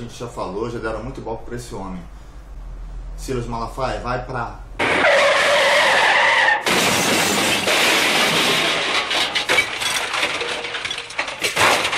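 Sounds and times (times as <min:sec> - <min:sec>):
tyre squeal: 0:04.8 - 0:06.7
shattering glass and debris: 0:06.6 - 0:11.9.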